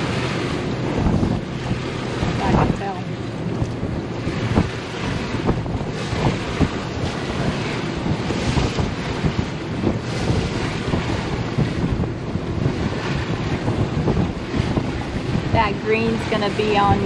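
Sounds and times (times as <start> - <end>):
water rushing along hull: 0.0 - 17.0
wind buffeting microphone: 0.0 - 17.0.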